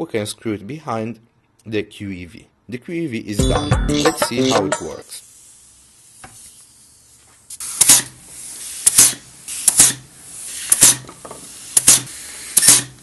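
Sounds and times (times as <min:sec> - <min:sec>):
compressed air hissing: 0:05.0 - 0:13.0
sharp air blasts: 0:05.0 - 0:13.0.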